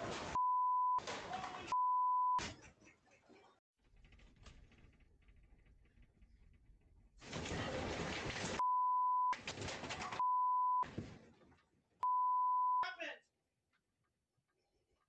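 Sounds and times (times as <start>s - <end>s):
house rattling and rumbling: 3.8s - 8.6s
censor bleep: 12.0s - 12.9s.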